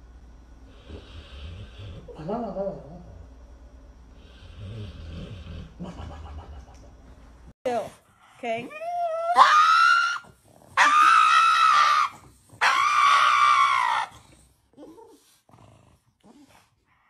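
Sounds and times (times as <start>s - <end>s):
dog wailing high-pitched: 8.7s - 10.2s, 10.8s - 14.1s.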